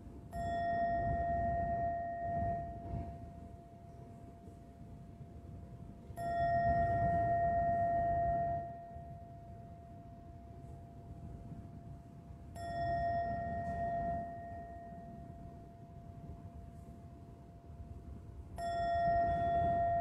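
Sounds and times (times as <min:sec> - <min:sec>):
small metal bell ringing: 0:00.3 - 0:04.0, 0:06.1 - 0:10.1, 0:12.6 - 0:16.4, 0:18.6 - 0:20.0.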